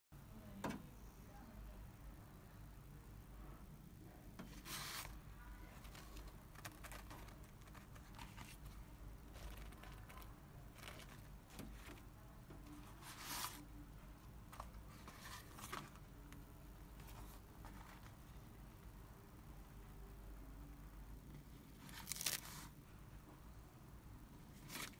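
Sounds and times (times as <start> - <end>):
steady low hum: 0.2 - 21.9
plastic film crinkling: 4.6 - 12.0, 21.8 - 22.7.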